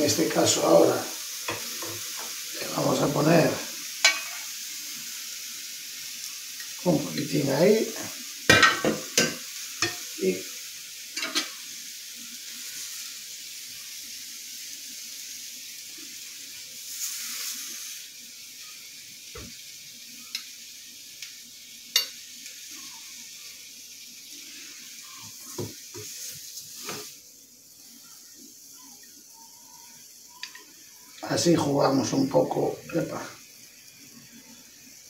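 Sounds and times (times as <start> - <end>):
pineapple sizzling in frying pan: 0.0 - 35.0.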